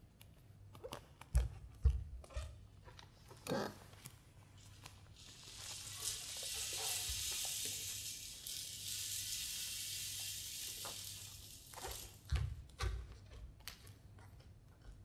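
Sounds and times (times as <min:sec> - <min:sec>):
steady high hiss: 0:05.1 - 0:12.2.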